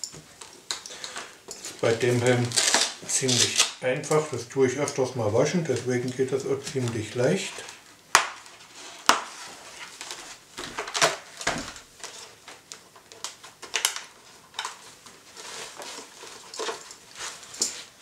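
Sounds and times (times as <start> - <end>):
fasteners clicking and snapping: 0.0 - 5.0.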